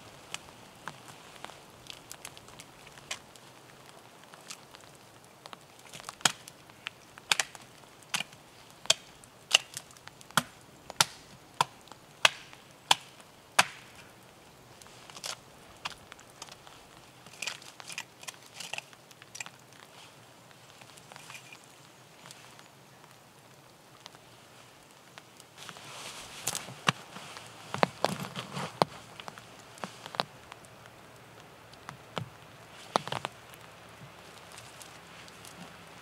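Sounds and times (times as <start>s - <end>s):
soft knocks and cracks: 4.2s - 14.0s, 26.4s - 30.6s, 31.7s - 35.8s
hatchet chopping wood: 10.4s - 13.9s.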